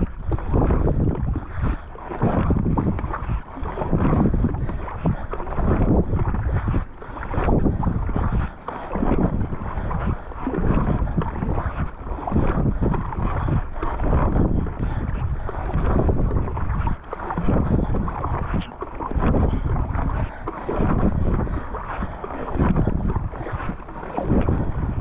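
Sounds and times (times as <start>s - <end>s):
paddle strokes in water: 0.0s - 25.0s
wind buffeting microphone: 0.0s - 25.0s.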